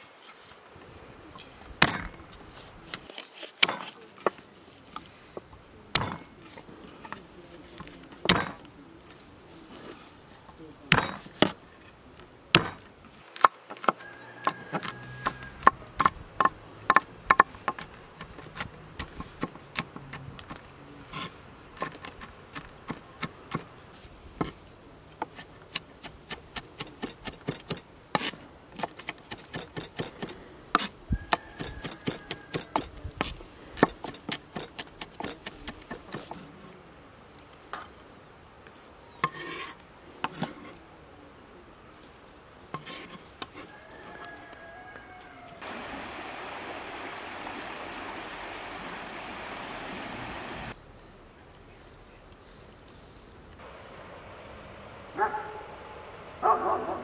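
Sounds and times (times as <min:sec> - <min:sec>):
knife scraping across board: 0:39.2 - 0:40.8, 0:42.8 - 0:44.3.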